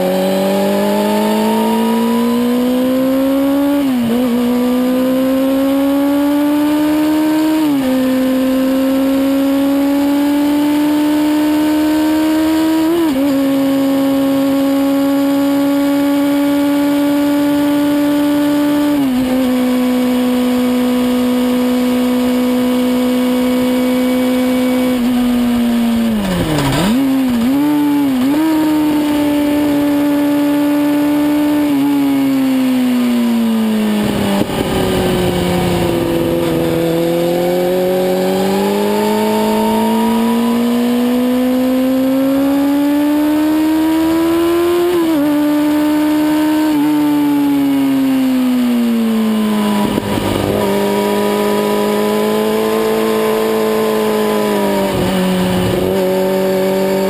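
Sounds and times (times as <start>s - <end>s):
motorcycle engine revving high: 0.0s - 57.0s
tyre noise: 25.9s - 28.4s
wind noise: 33.8s - 37.2s.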